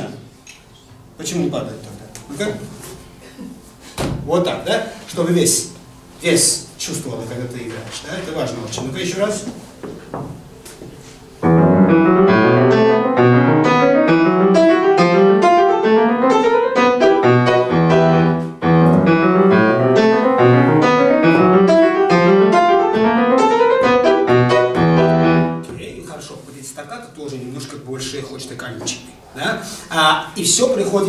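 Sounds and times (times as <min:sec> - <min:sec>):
grand piano playing: 0:11.4 - 0:25.7.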